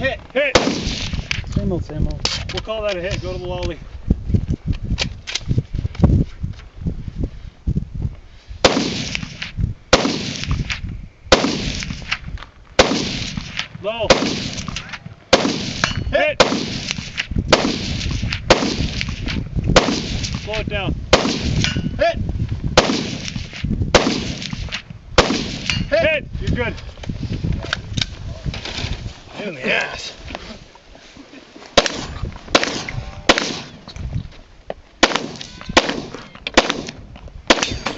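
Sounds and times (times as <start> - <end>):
gunshots: 0.4 - 1.4, 8.6 - 12.2, 12.8 - 21.9, 22.8 - 25.9, 31.8 - 33.8, 35.0 - 37.9.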